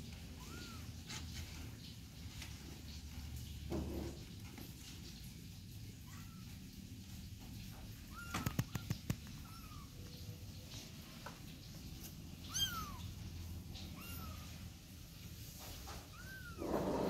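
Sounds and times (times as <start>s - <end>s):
kittens mewing: 12.3s - 14.8s.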